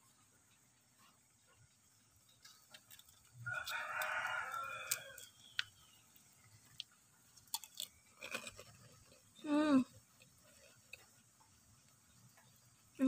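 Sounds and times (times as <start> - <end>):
rooster crowing: 3.4 - 5.5.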